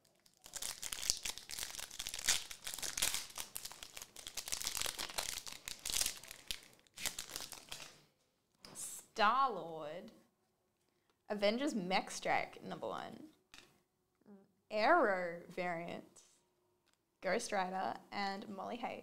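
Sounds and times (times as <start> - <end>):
wrapper crinkling: 0.0 - 8.0.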